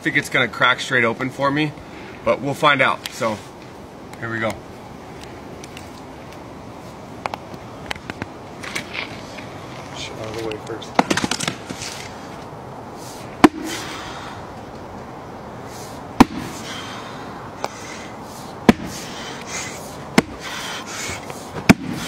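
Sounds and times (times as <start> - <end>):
axe chopping log: 13.4 - 13.8, 16.2 - 16.6, 18.6 - 19.0, 20.1 - 20.5, 21.6 - 22.0.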